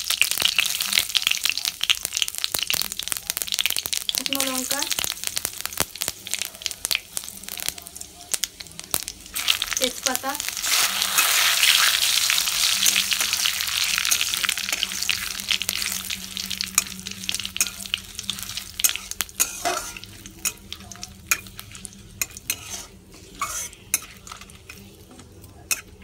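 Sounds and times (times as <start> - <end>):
spices sizzling in oil: 0.0 - 26.0
metal spatula scraping a pan: 10.6 - 25.0.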